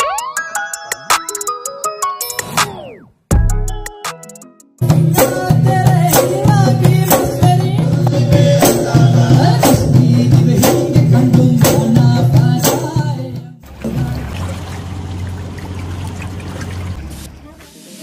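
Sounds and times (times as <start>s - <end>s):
music with a beat: 0.0s - 13.5s
person singing: 5.0s - 14.5s.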